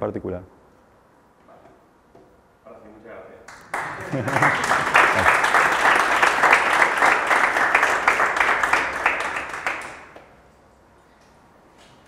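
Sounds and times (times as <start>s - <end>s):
audience applauding: 3.5s - 10.3s.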